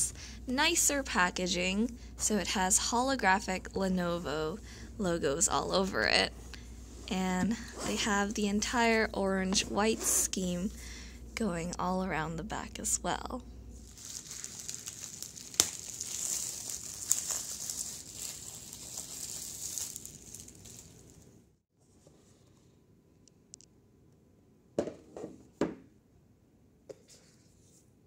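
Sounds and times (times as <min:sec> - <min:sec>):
plastic wrap crinkling: 0:13.8 - 0:21.4.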